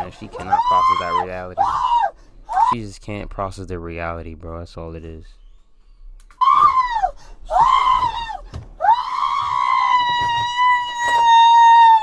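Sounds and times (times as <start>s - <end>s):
woman screaming: 0.4s - 2.7s, 6.4s - 12.0s.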